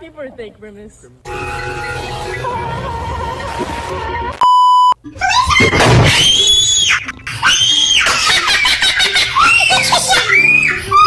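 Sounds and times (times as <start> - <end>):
electronic censor bleep: 4.4 - 5.0
high-pitched screaming: 5.2 - 8.5.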